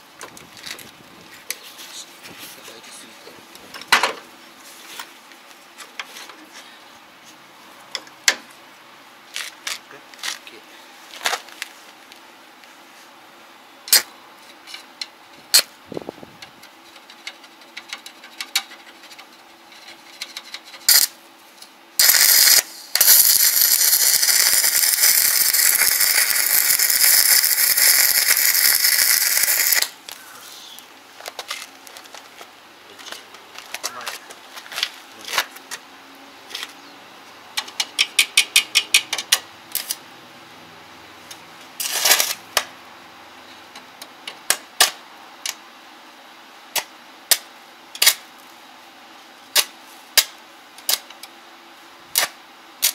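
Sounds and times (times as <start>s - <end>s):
welding arc crackling hiss: 20.8s - 21.2s, 22.0s - 30.9s
sharp metallic clicks: 37.6s - 40.0s.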